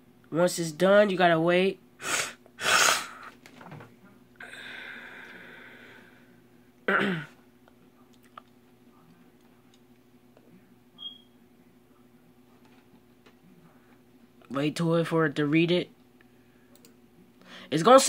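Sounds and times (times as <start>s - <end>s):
faint steady hum: 0.0s - 18.0s
man breathing: 4.4s - 6.4s.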